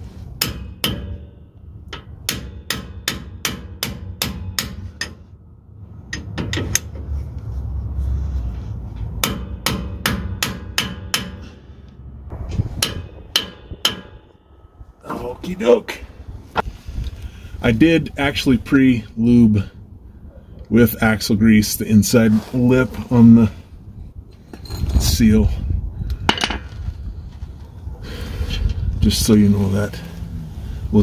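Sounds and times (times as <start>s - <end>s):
hammer striking metal: 0.4s - 5.3s, 9.2s - 11.7s, 12.5s - 14.6s.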